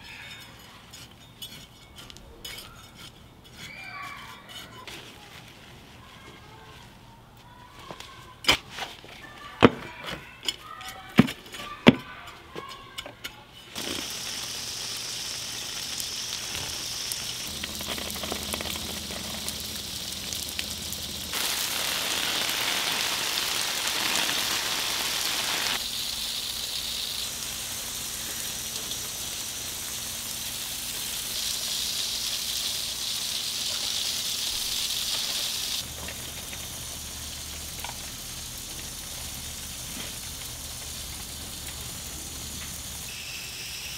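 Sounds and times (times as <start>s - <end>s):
water spray hissing on plants: 13.8s - 43.9s.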